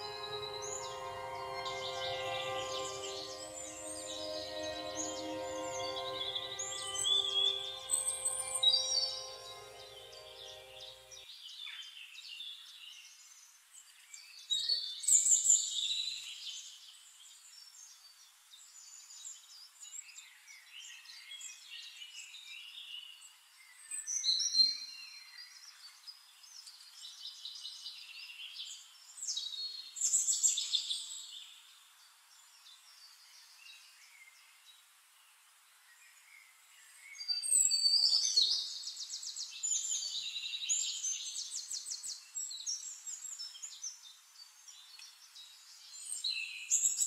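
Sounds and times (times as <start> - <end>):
songbirds chirping: 0.0 - 11.2.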